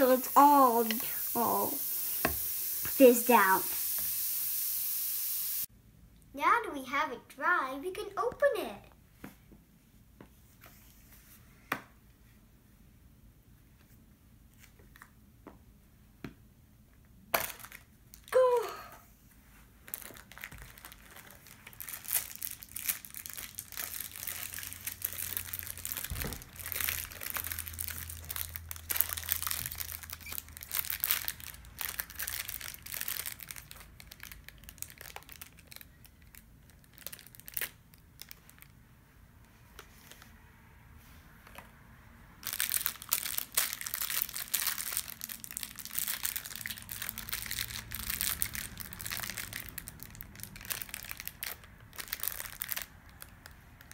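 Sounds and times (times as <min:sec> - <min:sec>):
plastic wrapper crinkling and tearing: 0:17.4 - 0:18.4, 0:19.8 - 0:38.8, 0:42.4 - 0:53.9.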